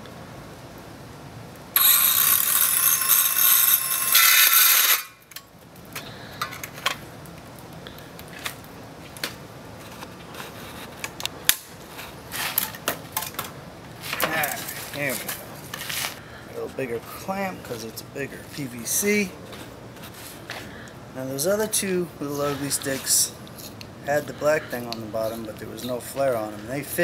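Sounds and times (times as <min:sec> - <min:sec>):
circular saw cutting pipe: 0:01.8 - 0:05.2.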